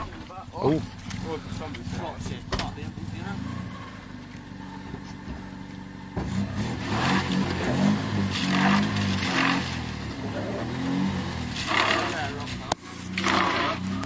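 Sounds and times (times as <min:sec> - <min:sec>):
car engine revving: 0:00.0 - 0:14.0
wheels spinning in mud: 0:06.3 - 0:14.0.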